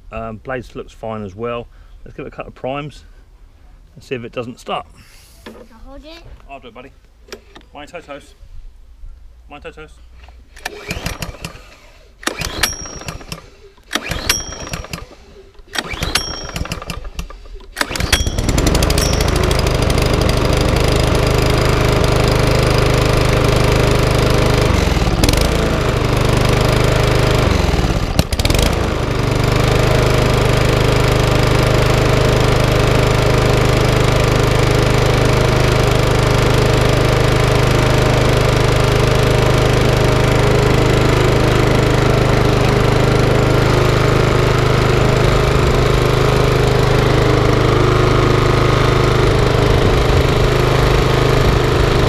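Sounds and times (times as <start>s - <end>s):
recoil starter pulls: 7.2s - 7.7s, 10.2s - 52.0s
lawnmower engine running: 10.4s - 52.0s.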